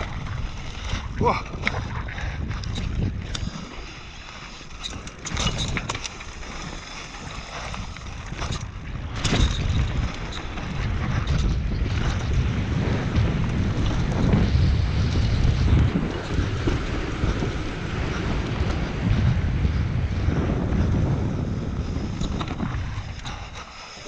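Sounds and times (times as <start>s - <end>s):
bike tyres rolling on dirt: 0.0s - 24.0s
wind buffeting microphone: 0.0s - 24.0s
bike knocks and rattles: 4.7s - 23.7s.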